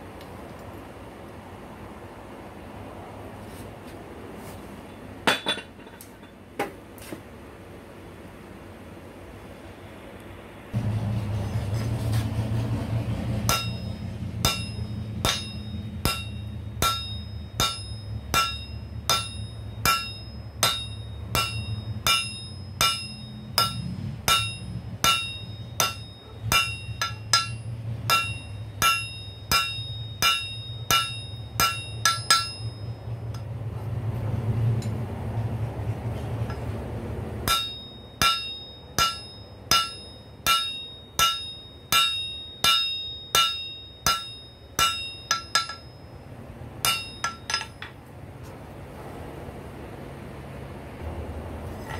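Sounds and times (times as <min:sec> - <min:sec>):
steady low hum: 0:00.0 - 0:51.9
hammer striking metal on anvil: 0:05.2 - 0:06.3, 0:13.3 - 0:33.5, 0:37.4 - 0:46.2, 0:46.8 - 0:48.0.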